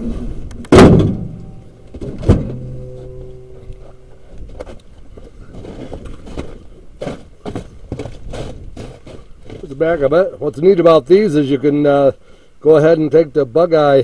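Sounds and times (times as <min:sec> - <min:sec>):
steady low hum: 0:00.0 - 0:13.6
footsteps crunching on snow: 0:03.7 - 0:10.0.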